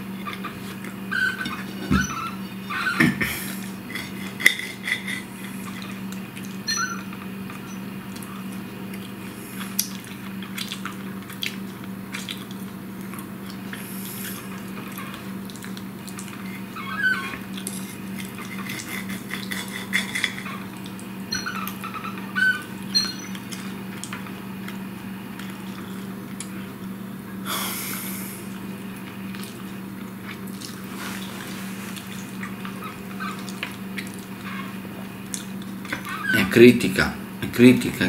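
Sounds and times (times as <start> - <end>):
cutlery scraping on plate: 3.9 - 5.8, 18.3 - 20.4.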